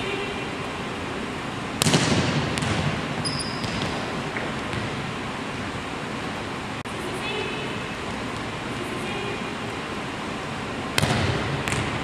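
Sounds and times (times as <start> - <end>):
hand slapping volleyball: 1.8 - 3.0, 11.0 - 12.0
shoe squeak: 3.2 - 3.8.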